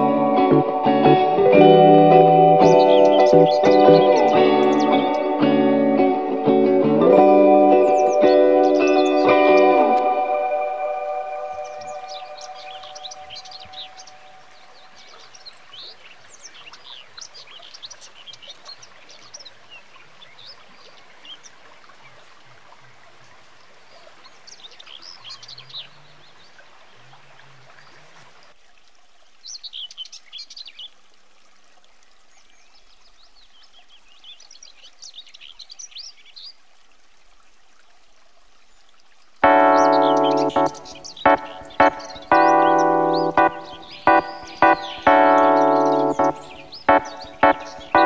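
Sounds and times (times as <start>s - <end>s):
birds chirping and singing: 0.0s - 21.6s, 23.9s - 26.6s, 39.4s - 48.0s
forest stream rushing: 0.0s - 48.0s.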